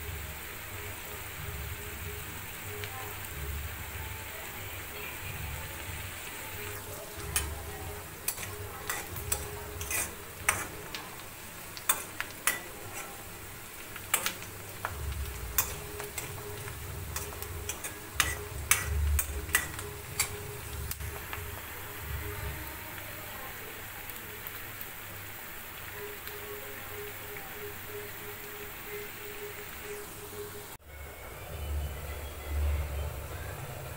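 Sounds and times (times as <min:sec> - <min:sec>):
onions sizzling in oil: 0:00.0 - 0:33.9
ladle scraping a pan: 0:07.3 - 0:11.1.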